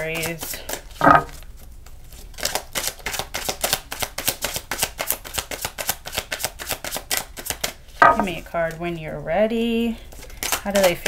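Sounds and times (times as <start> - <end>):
cards being shuffled: 0.0 - 7.8, 10.1 - 11.0.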